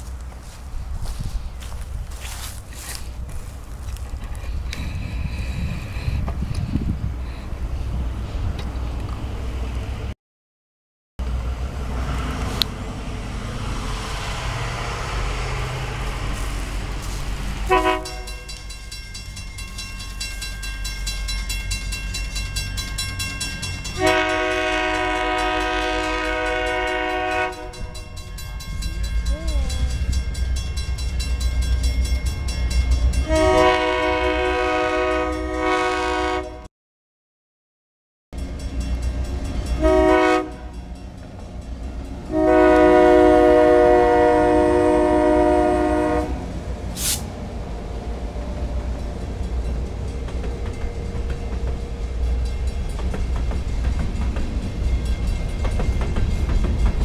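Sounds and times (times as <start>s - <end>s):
locomotive engines rumbling: 0.0s - 10.1s, 11.2s - 36.6s, 38.4s - 57.0s
train air horn: 16.3s - 18.5s, 24.0s - 28.0s, 33.2s - 36.7s, 39.8s - 40.7s, 42.3s - 47.3s.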